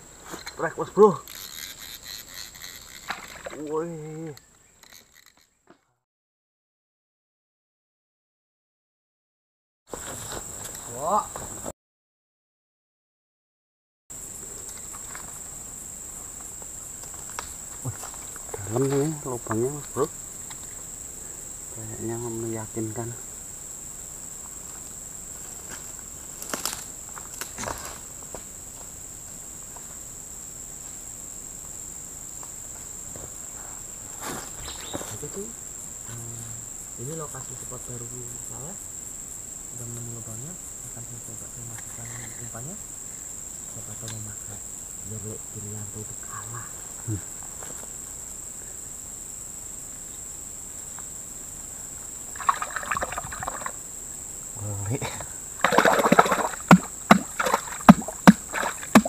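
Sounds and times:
high-pitched insect drone: 0.0s - 5.6s, 10.3s - 11.6s, 14.2s - 59.0s
water splashing and rustling: 2.3s - 3.8s, 52.3s - 53.8s, 55.6s - 59.0s.

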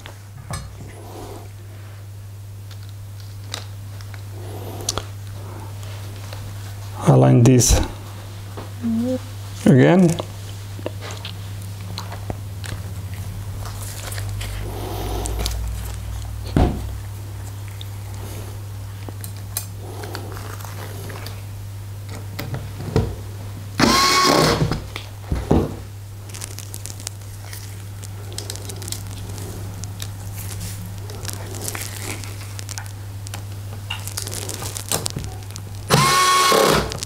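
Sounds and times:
electric screwdriver driving screws: 23.8s - 24.8s, 35.9s - 37.0s.

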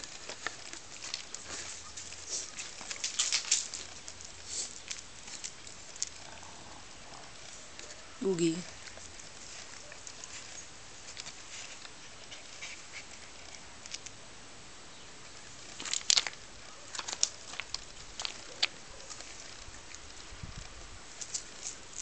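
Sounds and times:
dog claws scraping on concrete: 0.0s - 6.3s.

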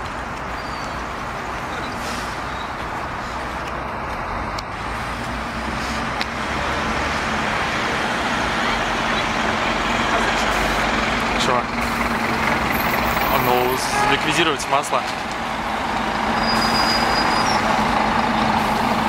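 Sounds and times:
bus engine: 0.0s - 19.0s
city street traffic: 0.0s - 19.0s.

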